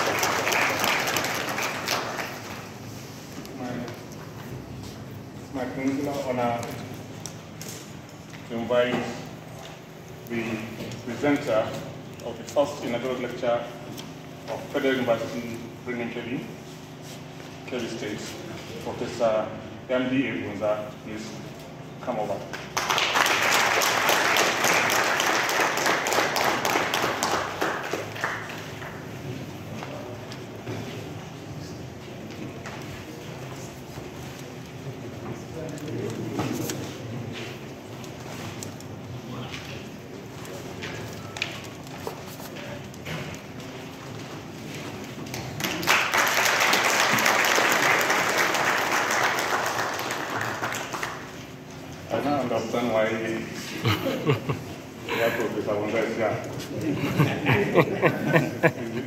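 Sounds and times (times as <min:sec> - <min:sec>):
audience applauding: 0:00.0 - 0:02.8, 0:22.6 - 0:29.1, 0:45.5 - 0:51.4.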